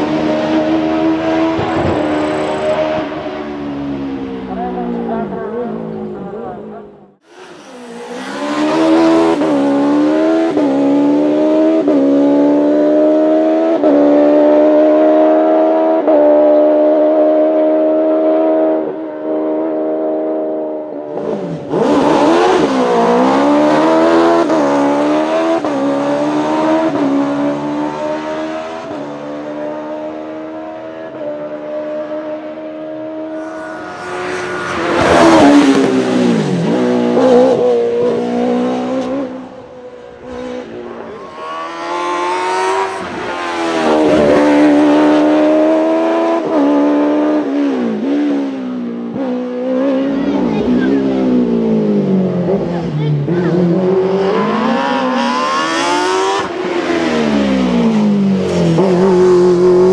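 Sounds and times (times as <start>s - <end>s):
motorcycle engine revving high: 31.7s - 39.5s.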